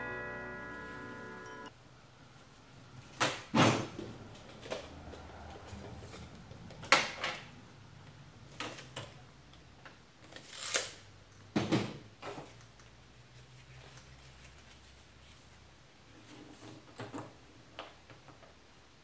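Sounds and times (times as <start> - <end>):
tape measure clicks and scrapes: 10.3 - 11.0.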